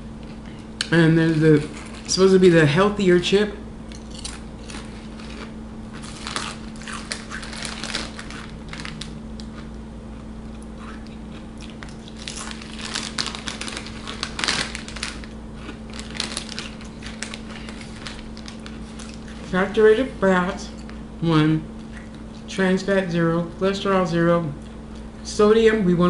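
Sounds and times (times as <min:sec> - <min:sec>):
chip crunching: 0:00.2 - 0:02.5, 0:03.9 - 0:19.8
foil bag crinkling: 0:00.9 - 0:02.5, 0:04.2 - 0:09.6, 0:11.8 - 0:20.1.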